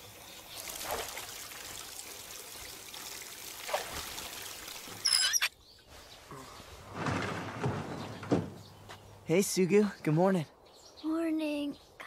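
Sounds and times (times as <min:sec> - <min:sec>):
water splashing and trickling: 0:00.0 - 0:06.2.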